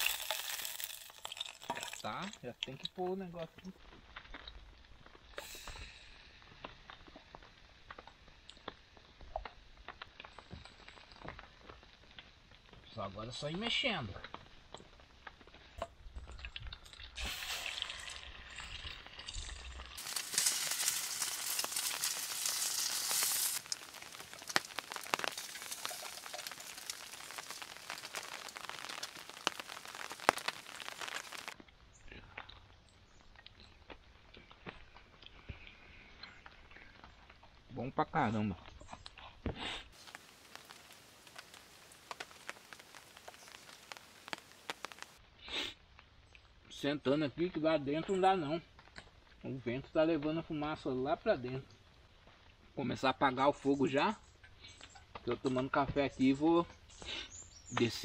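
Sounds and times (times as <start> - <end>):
rain hiss: 0.0 - 3.2, 5.2 - 9.0, 17.2 - 31.6, 39.8 - 45.7
cornmeal sizzling in hot oil: 0.0 - 31.6, 33.2 - 46.8, 57.0 - 58.0
oil crackling and popping: 0.0 - 53.1, 54.0 - 58.0
raindrops ticking on surfaces: 0.0 - 53.2.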